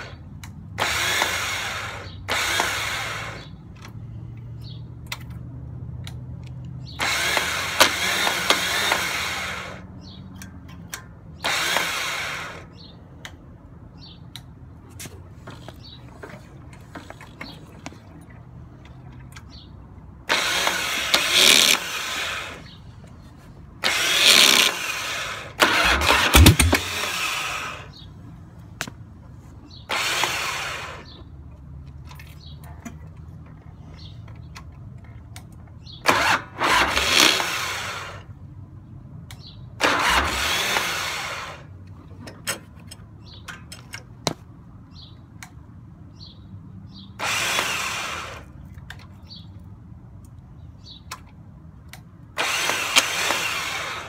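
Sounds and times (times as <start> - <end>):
motorcycle engine cranking: 25.6 - 28.0, 39.8 - 40.9.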